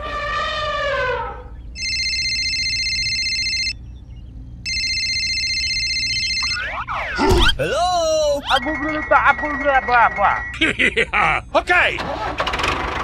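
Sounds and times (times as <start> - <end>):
telephone ringing: 1.8 - 3.8, 4.7 - 6.8.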